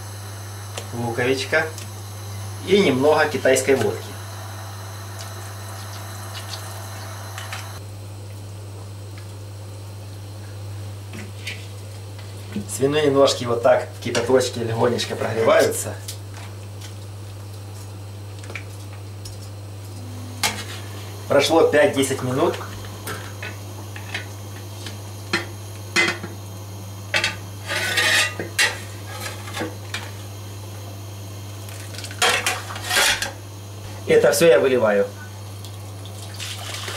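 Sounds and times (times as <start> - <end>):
steady low hum: 0.0 - 36.4
liquid pouring into water: 36.0 - 36.9.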